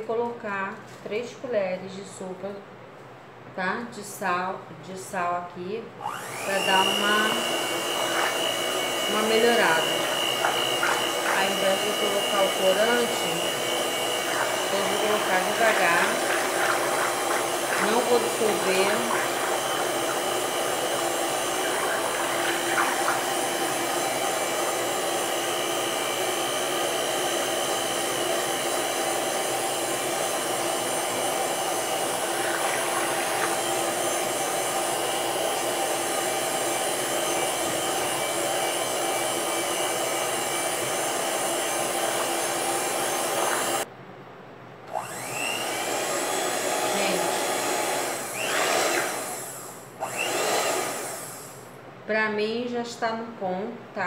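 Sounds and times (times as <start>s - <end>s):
electric mixer running: 6.0s - 43.9s, 44.9s - 51.8s.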